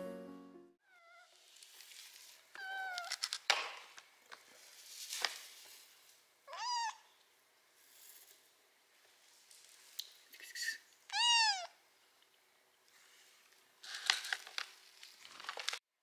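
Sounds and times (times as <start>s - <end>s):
kitten meowing: 6.5s - 7.0s, 11.1s - 11.8s.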